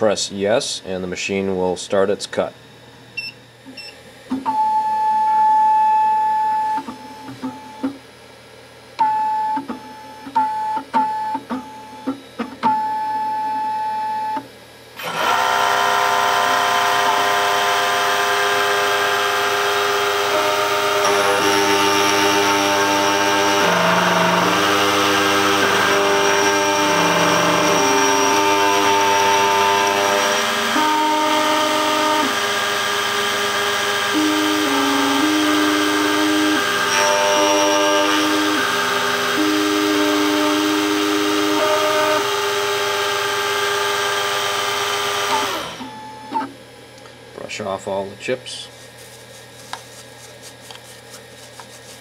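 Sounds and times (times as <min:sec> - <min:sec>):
key cutting machine whining: 0:15.0 - 0:46.4.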